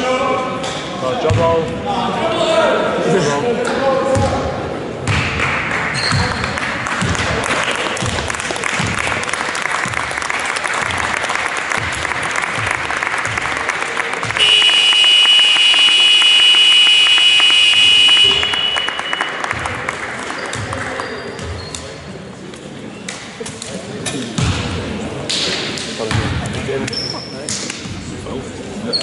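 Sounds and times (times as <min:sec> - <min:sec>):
crowd noise: 0:00.0 - 0:29.0
people clapping: 0:05.1 - 0:21.9
scoreboard buzzer: 0:14.4 - 0:19.5.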